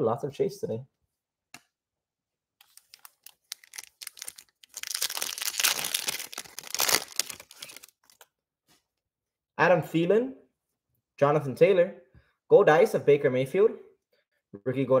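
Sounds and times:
foil wrapper crinkling and tearing: 2.6 - 8.3.

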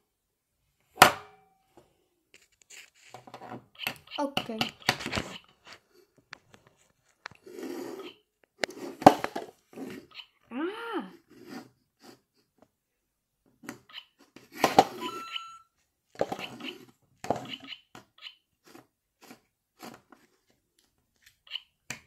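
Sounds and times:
short electronic beep: 15.0 - 15.7.

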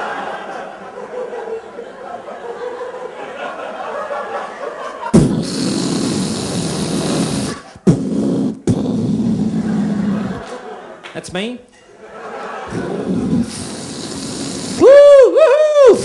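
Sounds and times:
audience laughing: 0.0 - 5.4, 9.6 - 11.2, 11.8 - 13.4
mouth blast into microphone: 5.1 - 10.6, 12.7 - 16.0.

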